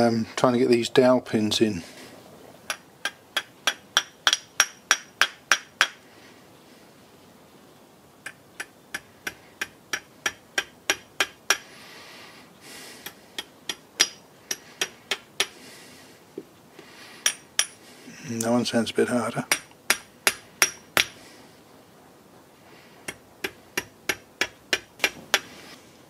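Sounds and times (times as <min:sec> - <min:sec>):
hammer tapping metal pins: 0:13.0 - 0:15.5, 0:23.0 - 0:25.5.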